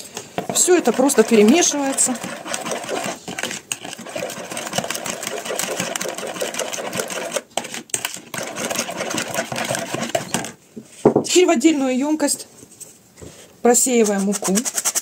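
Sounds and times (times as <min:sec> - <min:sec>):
spoon clinking and scraping bowl: 0:00.4 - 0:10.6.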